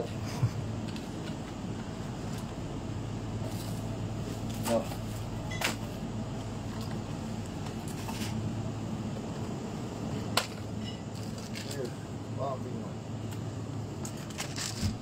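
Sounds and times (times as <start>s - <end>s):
refrigerated shelves humming: 0.0s - 15.0s
packaged groceries clicking and rustling: 10.5s - 11.9s, 14.0s - 15.0s.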